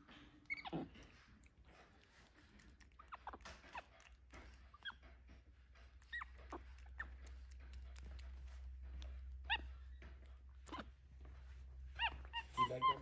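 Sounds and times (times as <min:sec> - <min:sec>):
monkeys squeaky chirps: 0:00.4 - 0:01.0, 0:11.9 - 0:13.0.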